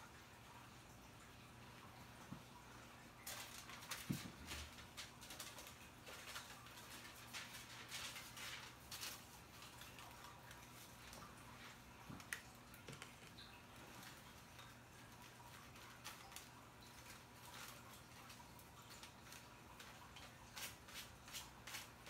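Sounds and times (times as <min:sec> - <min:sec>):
brush stroking hair: 0:17.3 - 0:22.0.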